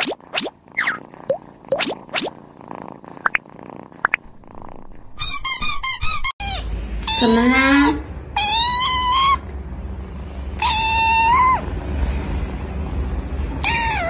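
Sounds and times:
low background hum: 0.0 - 14.0
short high squeaks: 5.0 - 6.6.

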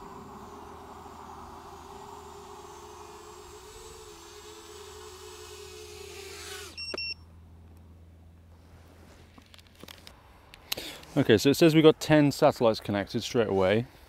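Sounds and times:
quadcopter motors whining: 0.0 - 7.2
double electronic beep: 6.8 - 7.2.

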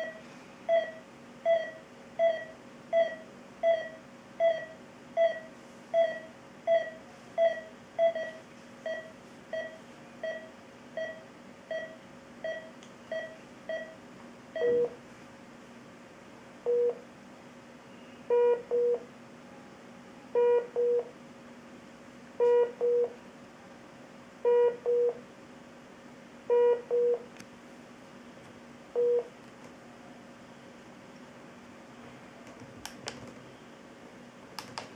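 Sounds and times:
monitor alarm double beep: 0.0 - 14.0, 14.6 - 15.0, 16.7 - 17.0, 17.9 - 19.1, 20.4 - 21.1, 22.4 - 23.2, 24.4 - 25.2, 26.5 - 27.3, 29.0 - 29.3
monitor pulse beeps: 0.0 - 15.0, 16.6 - 17.0, 18.0 - 19.1, 20.4 - 21.1, 22.4 - 23.2, 24.4 - 25.2, 26.5 - 27.3, 28.9 - 29.3.

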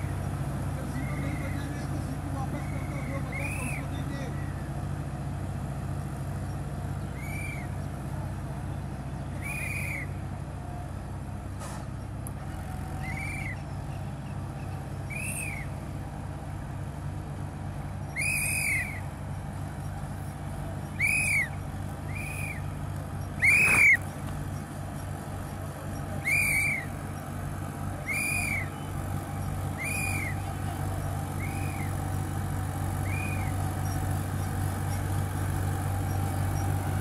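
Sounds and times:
distant tractor engines droning: 0.0 - 37.0
whistle-like calls: 0.9 - 1.7, 2.5 - 4.0, 7.1 - 7.8, 9.3 - 10.2, 13.0 - 13.7, 15.0 - 15.8, 18.1 - 19.1, 20.9 - 22.8, 23.4 - 24.0, 26.2 - 27.0, 28.0 - 28.9, 29.6 - 30.6, 31.4 - 32.0, 33.0 - 34.0.

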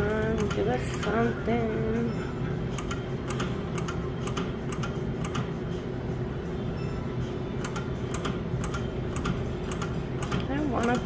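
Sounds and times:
steady machine hum: 0.0 - 11.0
sharp electronic ticks: 2.7 - 5.5, 7.6 - 11.0.

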